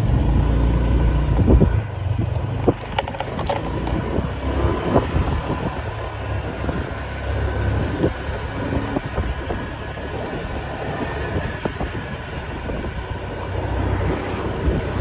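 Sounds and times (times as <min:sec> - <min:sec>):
bike riding rumble: 0:00.0 - 0:15.0
bike clicks and rattles: 0:01.9 - 0:13.3.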